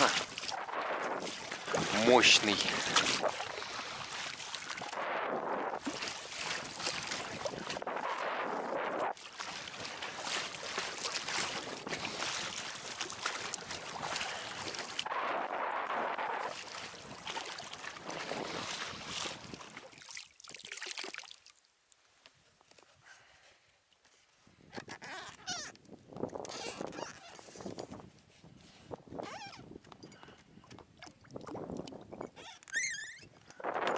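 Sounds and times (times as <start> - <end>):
wind on microphone: 0.0 - 19.8, 24.5 - 33.9
water slapping against boat: 0.0 - 21.3.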